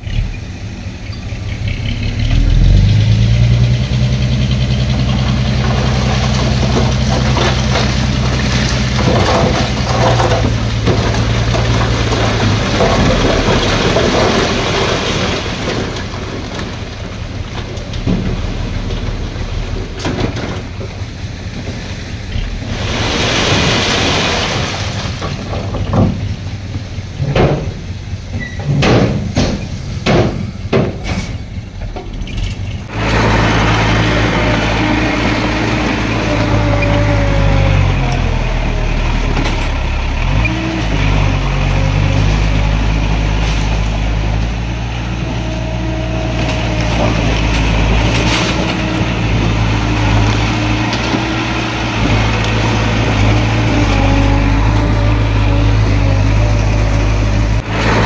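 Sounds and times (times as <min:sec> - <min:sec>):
knocks and clatter: 0:04.9 - 0:21.8, 0:24.9 - 0:37.4
diesel engine running loudly: 0:31.0 - 0:58.0.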